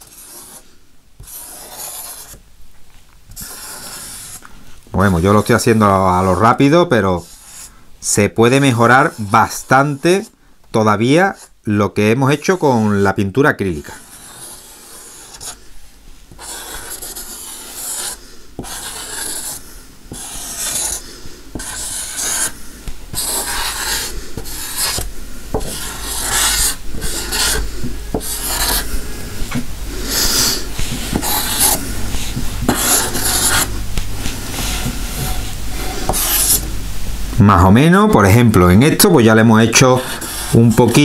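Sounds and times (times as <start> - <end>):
marker scratching on painted tray: 0.0 - 2.4, 3.3 - 4.4, 5.0 - 7.7, 13.8 - 15.6, 16.3 - 36.7, 39.1 - 41.0.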